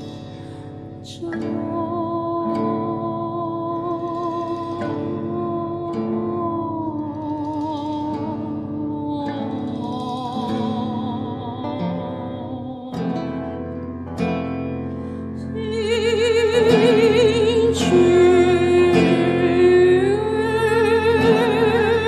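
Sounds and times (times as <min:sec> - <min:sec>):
plucked string notes: 0:00.0 - 0:22.0.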